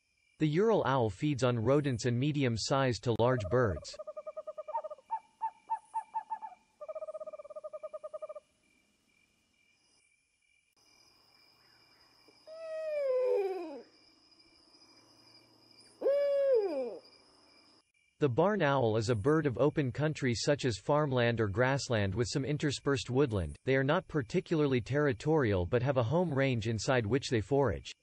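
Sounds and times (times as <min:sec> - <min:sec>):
owl hooting: 0:03.4 - 0:08.4, 0:12.4 - 0:13.9, 0:16.0 - 0:17.1.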